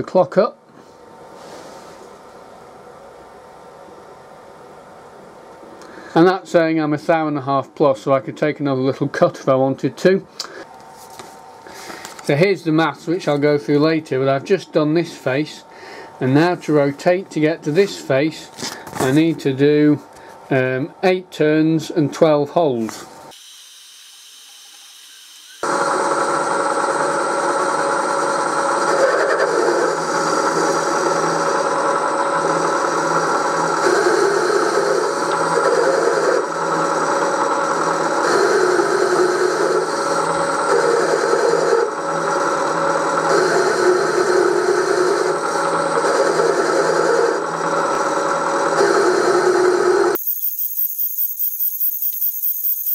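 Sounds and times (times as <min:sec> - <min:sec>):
milling machine hum: 0:23.3 - 0:52.9
metal cutting noise: 0:24.0 - 0:52.9.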